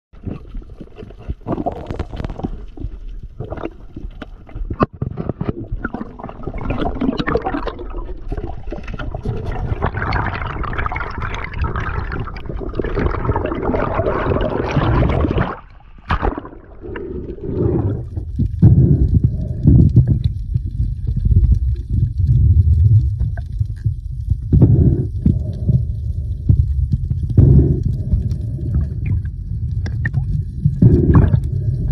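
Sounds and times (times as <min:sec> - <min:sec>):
underwater bubbling rush: 0:00.2 - 0:31.9
underwater clicks and knocks: 0:03.4 - 0:07.7.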